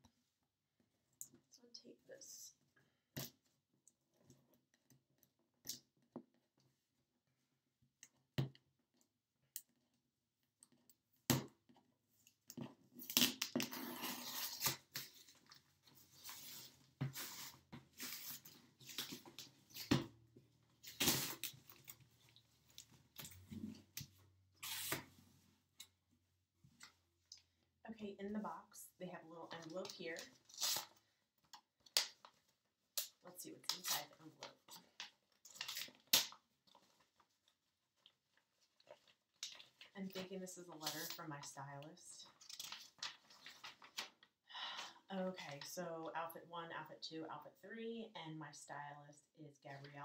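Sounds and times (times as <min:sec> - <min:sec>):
packing tape peeling off cardboard: 0:13.0 - 0:15.3, 0:24.6 - 0:25.1.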